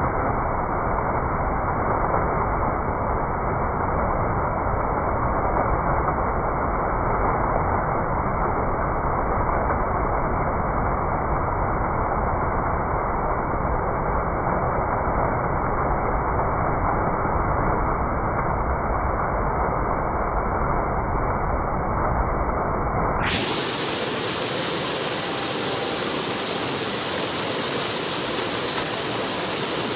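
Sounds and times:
fountain water splashing: 0.0 - 22.4, 23.2 - 29.9.

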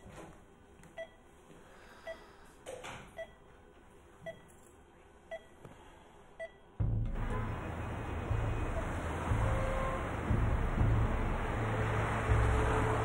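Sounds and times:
patient monitor beeping: 1.0 - 1.3, 2.0 - 2.3, 3.2 - 3.5, 4.2 - 4.5, 5.3 - 5.6.

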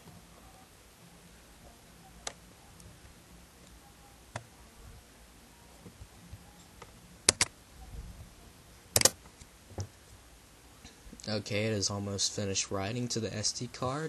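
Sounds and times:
faint room hum: 0.0 - 14.0
computer mouse clicks: 6.8 - 7.5, 9.0 - 9.2.

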